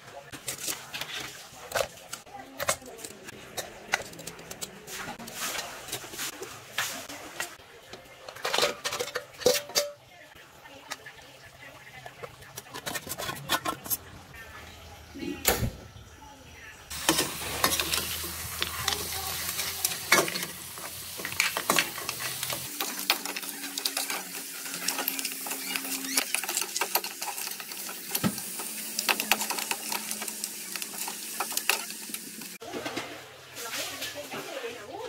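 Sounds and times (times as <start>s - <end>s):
metal spatula scraping wok: 2.9s - 7.2s, 12.5s - 14.1s, 16.9s - 32.6s
food sizzling in pan: 16.9s - 32.6s.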